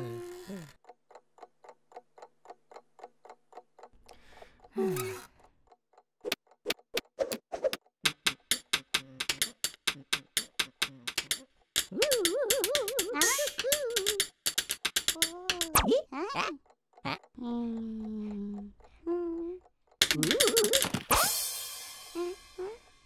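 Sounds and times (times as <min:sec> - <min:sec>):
groaning voice: 0:00.0 - 0:00.8
wall clock ticking: 0:00.7 - 0:21.1
cartoon voice: 0:11.9 - 0:14.3, 0:15.2 - 0:17.2, 0:20.2 - 0:21.4.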